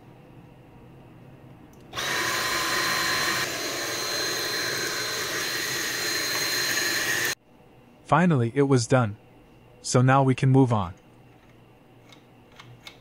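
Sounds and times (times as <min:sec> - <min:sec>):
handheld vacuum cleaner whining: 0:01.9 - 0:07.4.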